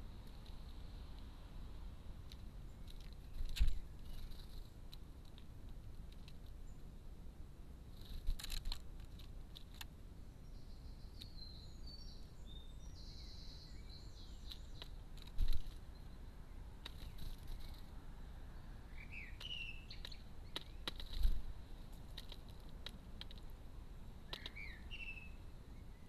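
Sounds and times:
small bird chirping: 0:02.2 - 0:05.4, 0:07.9 - 0:26.0
woodpecker bill tapping tray: 0:14.4 - 0:15.8, 0:19.2 - 0:21.4, 0:22.0 - 0:23.5, 0:24.2 - 0:25.1.

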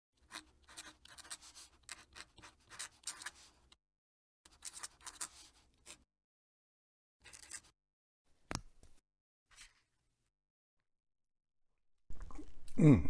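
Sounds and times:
pen nib scratching on paper: 0:00.3 - 0:03.5, 0:04.5 - 0:06.0.

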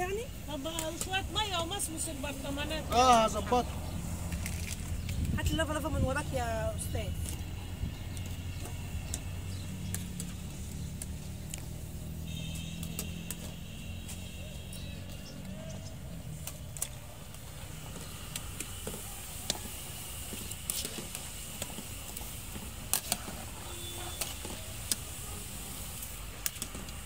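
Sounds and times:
oil sizzling: 0:00.3 - 0:14.3, 0:16.1 - 0:27.0.

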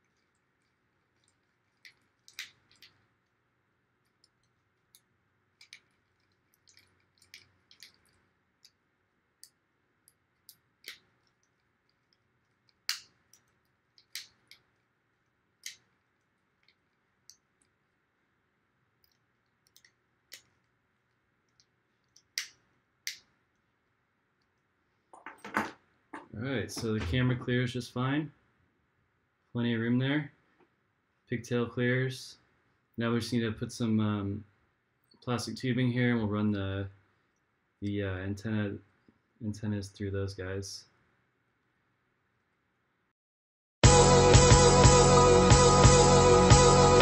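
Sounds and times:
small clicks and taps: 0:00.0 - 0:03.4, 0:04.0 - 0:08.8, 0:09.4 - 0:14.9, 0:19.0 - 0:23.7.

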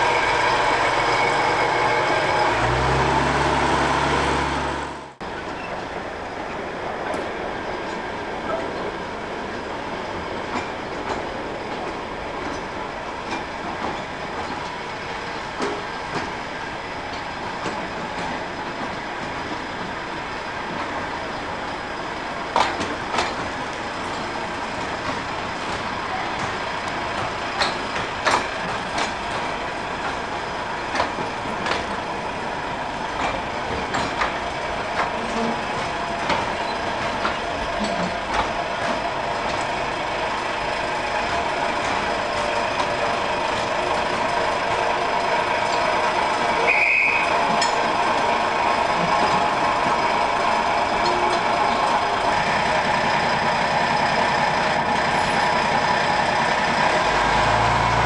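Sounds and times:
train coaches rolling rumble: 0:00.0 - 0:58.0
wheel clicks over rail joints: 0:22.5 - 0:32.2, 0:32.8 - 0:44.9, 0:47.0 - 0:57.1.

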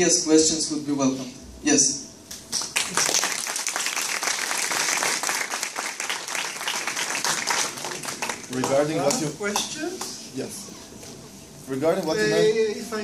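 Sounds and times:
audience applauding: 0:02.6 - 0:09.7.

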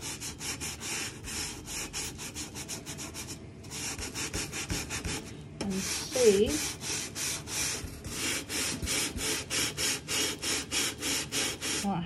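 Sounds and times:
sponge scrubbing metal: 0:03.8 - 0:12.0.

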